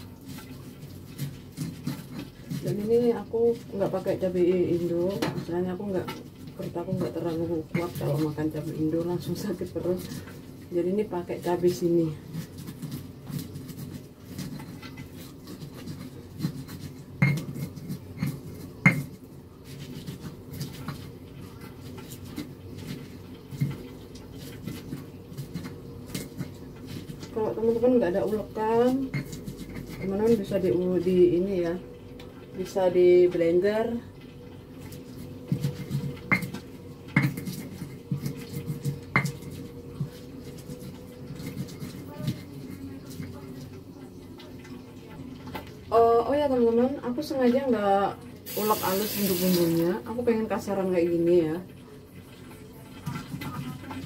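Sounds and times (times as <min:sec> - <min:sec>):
mortar and pestle pounding: 0:11.7 - 0:19.2, 0:22.0 - 0:30.7, 0:35.4 - 0:42.5.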